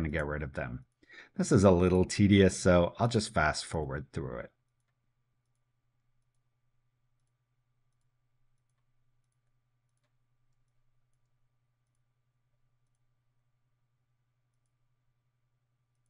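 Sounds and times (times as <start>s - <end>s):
computer mouse clicks: 4.7s - 6.5s, 7.1s - 12.1s, 12.8s - 13.2s.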